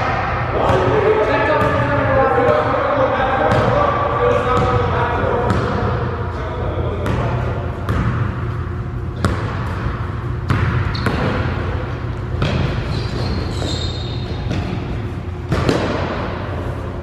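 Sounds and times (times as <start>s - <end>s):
steady low hum: 0.0s - 17.0s
sneakers squeaking on court: 4.5s - 6.0s, 6.9s - 16.2s
basketball bouncing on hardwood: 5.5s - 5.8s, 9.2s - 11.5s, 12.4s - 13.7s, 15.5s - 16.2s.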